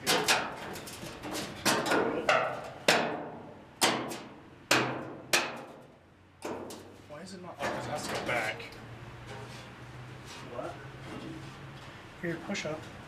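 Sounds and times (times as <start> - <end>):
fist knocking on steel panel: 1.7 - 5.8.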